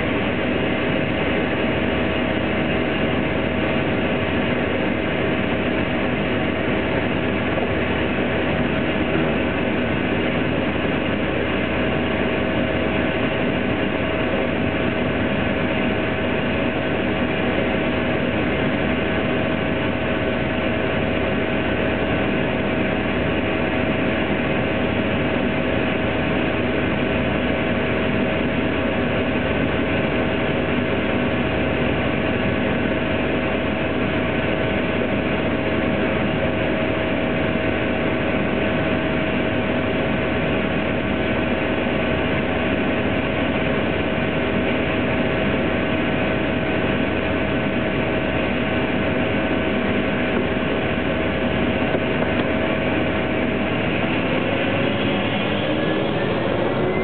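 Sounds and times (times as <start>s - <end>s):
propeller plane engine drone: 0.0s - 57.0s.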